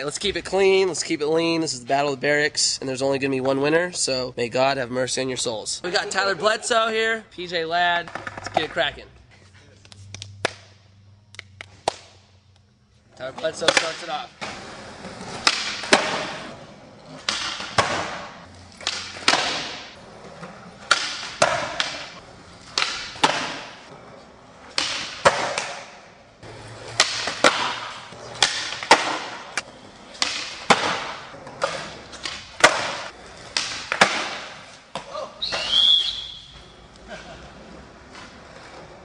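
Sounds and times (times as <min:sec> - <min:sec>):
skateboard wheels rolling: 0:13.2 - 0:39.0
skateboard landings: 0:13.4 - 0:37.0
skateboard tail pops: 0:17.2 - 0:19.9, 0:26.9 - 0:35.8.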